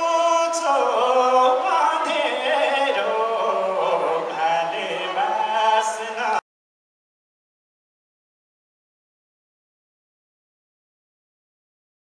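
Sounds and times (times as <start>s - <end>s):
man singing into microphone: 0.0s - 6.4s.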